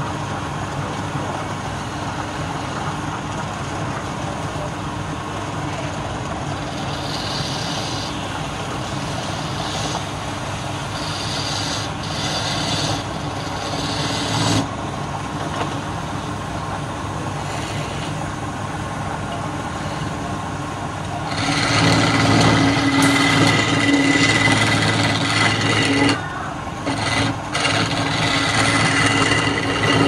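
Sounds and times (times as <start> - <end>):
chisel scraping spinning wood: 5.7 - 14.8, 17.3 - 18.2, 21.1 - 30.0
wood lathe motor hum: 6.0 - 14.8, 17.2 - 18.2, 21.0 - 30.0.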